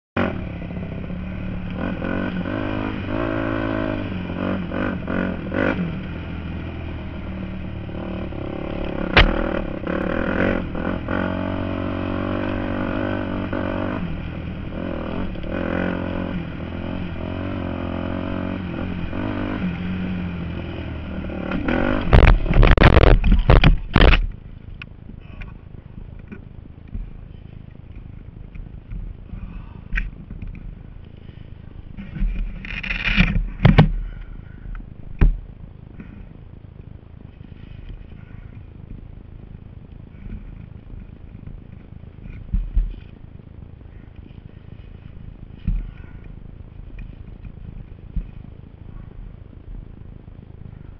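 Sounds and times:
dirt bike engine revving: 0:00.2 - 0:24.3
motorcycle crashing and clattering: 0:07.8 - 0:10.6, 0:21.3 - 0:24.4.

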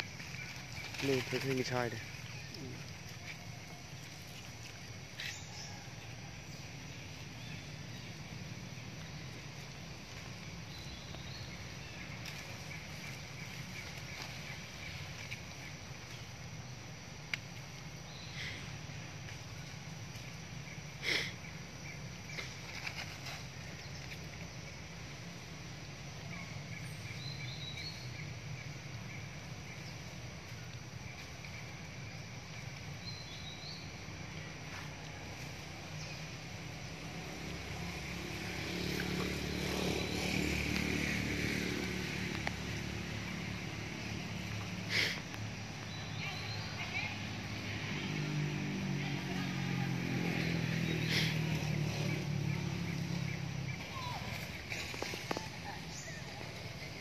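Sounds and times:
low forest hum: 0:00.0 - 0:57.0
vehicle engine running: 0:17.6 - 0:57.0.

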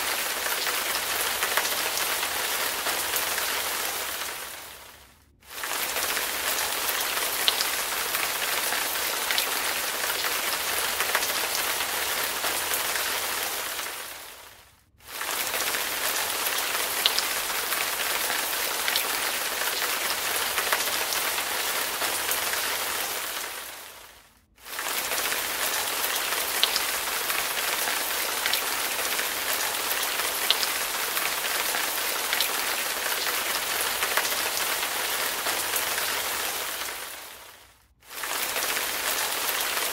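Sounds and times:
heavy rain: 0:00.0 - 0:39.9.

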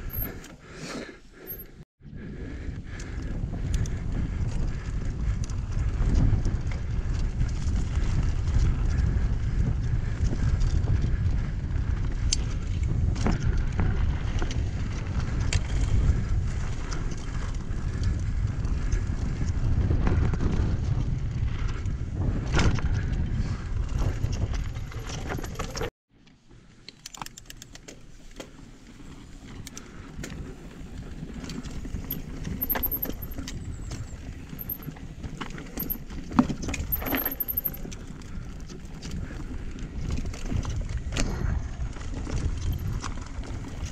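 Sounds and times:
wind buffeting microphone: 0:02.0 - 0:25.6, 0:28.8 - 0:43.9
bike clicks and knocks: 0:24.3 - 0:43.9.

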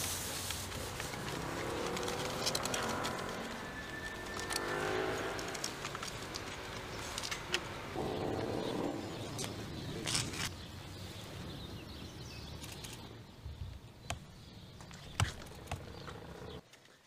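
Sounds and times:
low rustling: 0:00.0 - 0:10.5.

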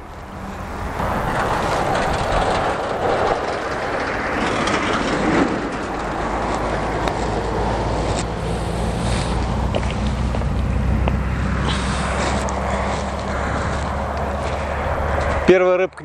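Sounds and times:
steady low hum: 0:00.0 - 0:15.5
passing vehicle rumble: 0:00.0 - 0:16.0.

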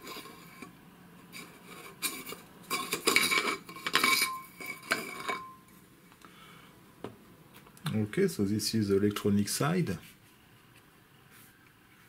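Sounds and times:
metal scraping and clinking: 0:00.0 - 0:05.6.

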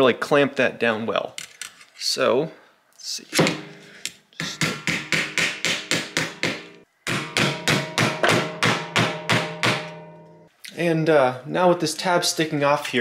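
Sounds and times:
hammer striking metal: 0:03.4 - 0:10.5.

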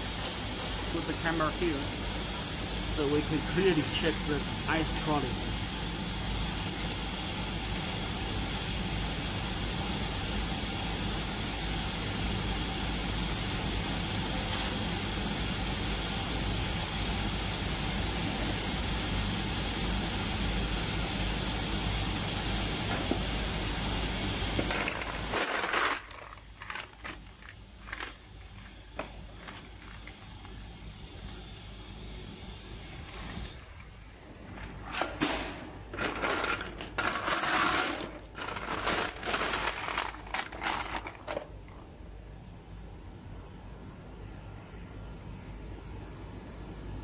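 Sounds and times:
ice machine humming: 0:00.0 - 0:41.9
ice cubes clinking: 0:24.6 - 0:28.2, 0:36.0 - 0:41.5
ice cubes shifting: 0:24.6 - 0:28.7, 0:36.0 - 0:41.5.

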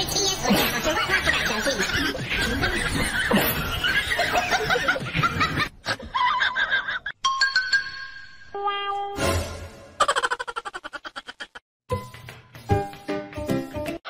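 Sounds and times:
people laughing: 0:00.5 - 0:07.2, 0:10.0 - 0:11.6.

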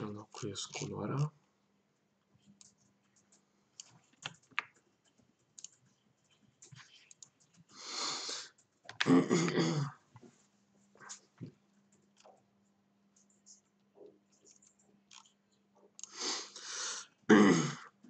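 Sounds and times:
short vocal sound: 0:09.0 - 0:09.9.

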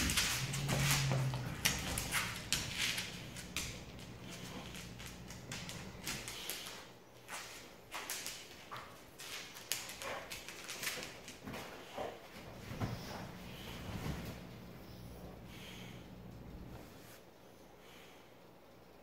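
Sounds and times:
dog scuffling and clicking: 0:00.0 - 0:14.6
dog thumping and rustling on couch: 0:11.0 - 0:14.6.

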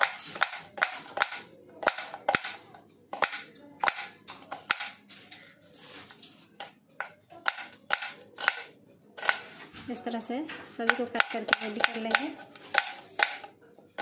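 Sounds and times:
knife tapping on cutting board: 0:10.9 - 0:13.5.

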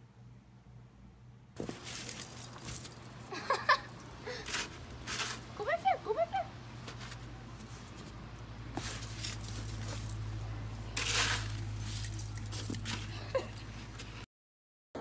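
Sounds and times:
snow shovel scraping pavement: 0:04.3 - 0:05.6, 0:08.7 - 0:10.2, 0:10.8 - 0:13.1.

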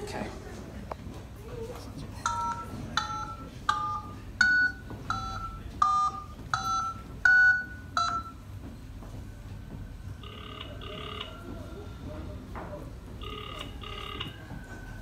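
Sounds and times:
telephone keypad tones: 0:02.3 - 0:08.4, 0:13.2 - 0:14.5.

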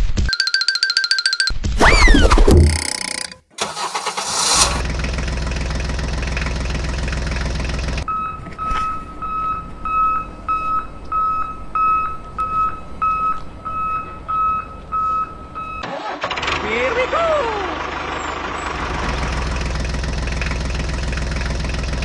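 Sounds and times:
high electronic beeping: 0:00.3 - 0:03.4
tractor engine running: 0:02.4 - 0:22.0.

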